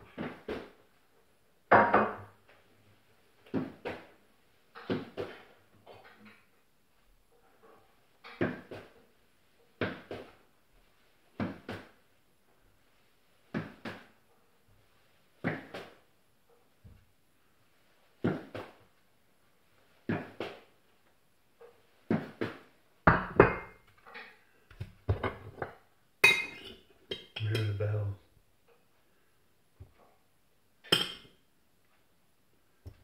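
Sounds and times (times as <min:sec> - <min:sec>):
knocks and clatter on worktop: 0:22.1 - 0:25.8.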